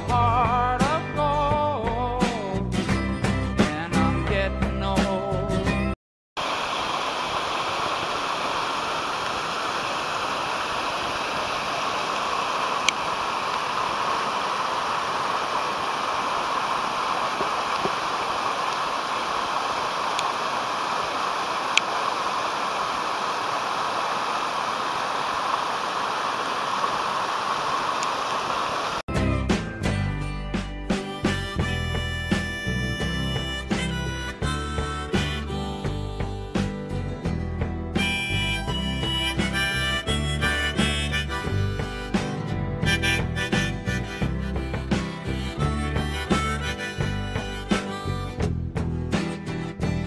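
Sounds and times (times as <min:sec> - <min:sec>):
water rushing over boulders: 0:06.4 - 0:29.0.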